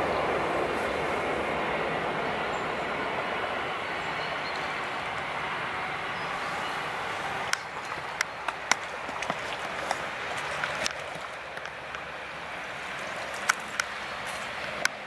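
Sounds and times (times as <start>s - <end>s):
gravel stirred by hand: 7.6s - 12.1s.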